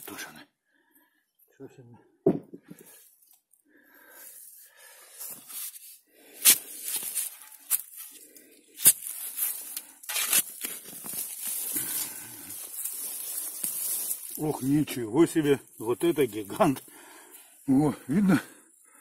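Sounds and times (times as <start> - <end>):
spade digging soil: 5.2 - 8.2, 8.8 - 14.8.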